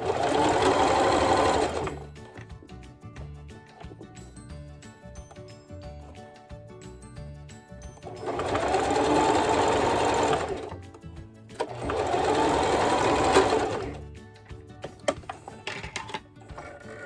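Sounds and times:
sewing machine stitching: 0.0 - 2.1, 8.0 - 10.8, 11.6 - 14.0.

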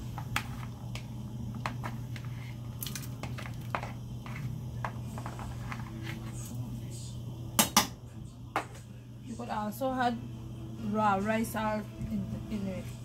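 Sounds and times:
steady low hum: 0.0 - 13.0
spoon scraping plastic bowl: 3.2 - 6.5.

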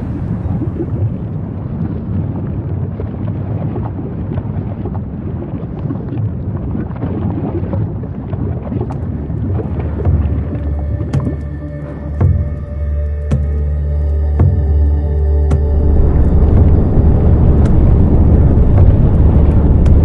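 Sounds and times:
lava vent rumbling: 0.0 - 20.0
dense crackling: 8.8 - 20.0.

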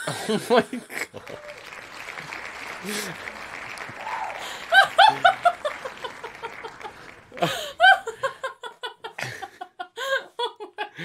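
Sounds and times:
woman laughing hard: 4.5 - 11.0.

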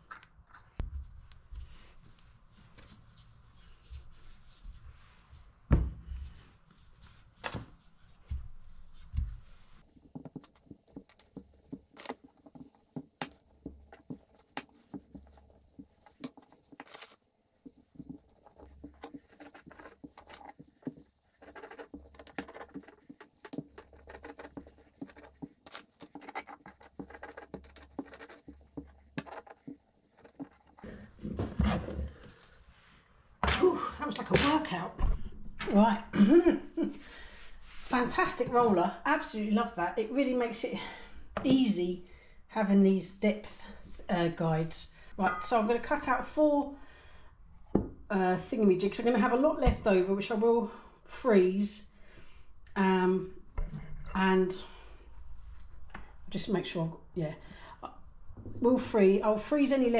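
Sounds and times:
rolling pin rolling pastry: 9.0 - 31.0.

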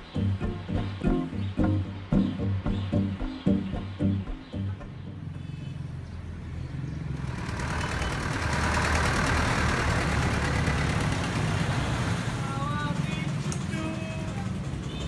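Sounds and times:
music: 0.0 - 5.5
road noise: 0.0 - 15.0
pickup truck engine running: 7.2 - 11.8.

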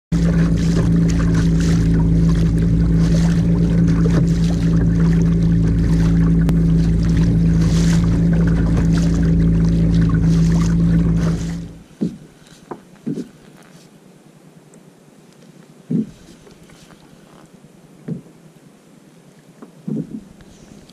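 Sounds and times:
water splashing off kayak bow: 0.1 - 13.5
steady low hum: 0.1 - 19.2.

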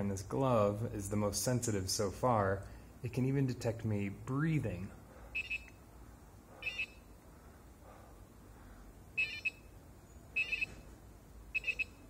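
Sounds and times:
faint breathing: 2.6 - 3.0, 7.3 - 9.0
short high electronic beeps: 10.4 - 10.8.

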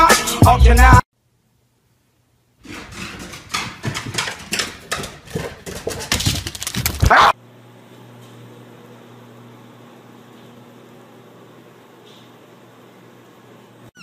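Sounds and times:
dog claws clattering on wood floor: 2.7 - 7.2.

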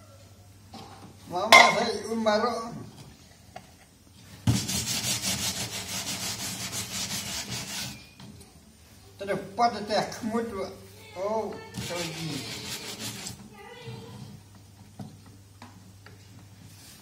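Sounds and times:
brush scrubbing plastic: 4.4 - 8.1, 11.7 - 13.5.

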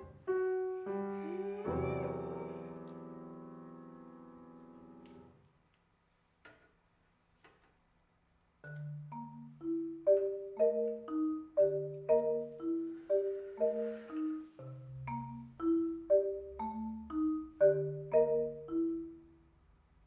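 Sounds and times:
piano chord: 0.0 - 5.3
marimba playing: 8.6 - 19.5.

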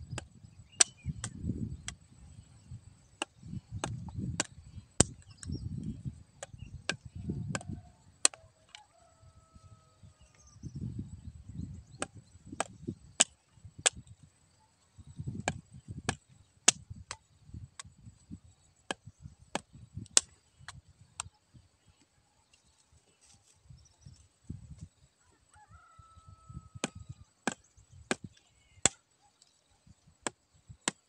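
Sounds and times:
machete chopping stems: 0.1 - 2.0, 3.1 - 5.5, 12.0 - 14.1, 15.4 - 17.3, 26.8 - 29.0.

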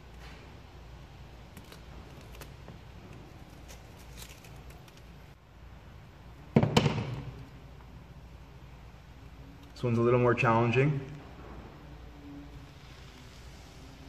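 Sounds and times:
vinyl film ticking and rustling: 1.5 - 5.4.

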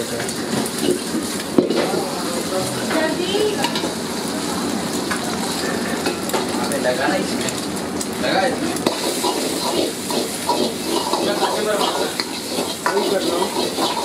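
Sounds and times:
egg sizzling in hot oil: 0.0 - 14.0
metal ladle scraping a wok: 8.9 - 14.0.

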